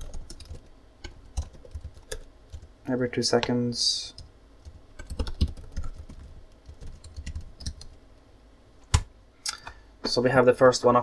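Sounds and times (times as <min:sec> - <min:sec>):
keyboard typing: 0:00.0 - 0:02.7, 0:04.1 - 0:08.0.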